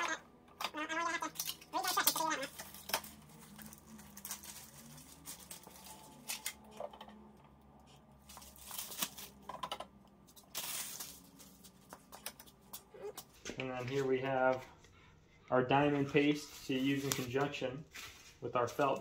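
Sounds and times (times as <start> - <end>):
packaging rustling: 1.3 - 7.0, 8.2 - 9.5, 10.3 - 12.9.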